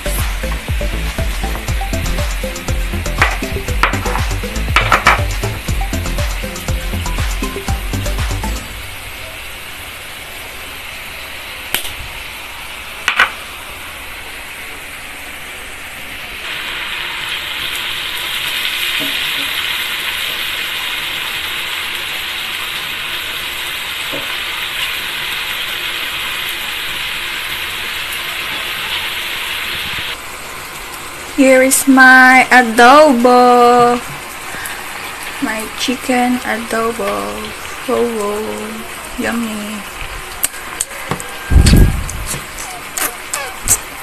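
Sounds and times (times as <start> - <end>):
chicken sizzling in frying pan: 0.0 - 9.2, 16.1 - 31.3, 37.3 - 44.0.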